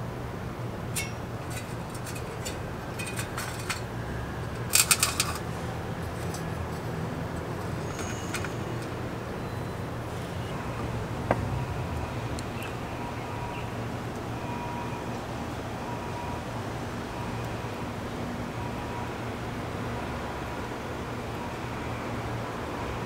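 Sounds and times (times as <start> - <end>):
light clicks and taps on metal: 0.9 - 5.5
metal lid click: 1.0 - 3.9
metallic clinks: 1.0 - 3.9.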